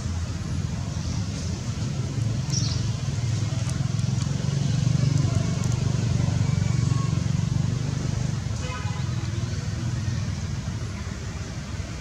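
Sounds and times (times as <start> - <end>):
engine humming: 0.0 - 8.6.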